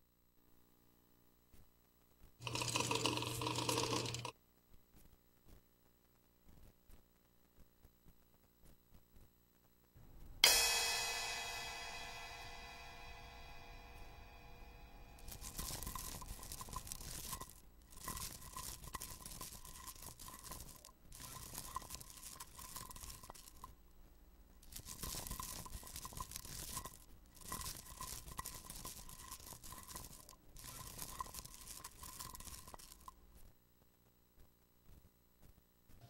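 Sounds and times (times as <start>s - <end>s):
crinkling crunching foley: 15.2s - 33.6s.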